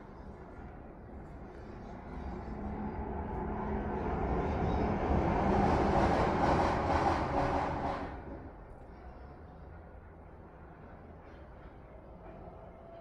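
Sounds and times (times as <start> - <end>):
passing train rumble: 1.5 - 8.7.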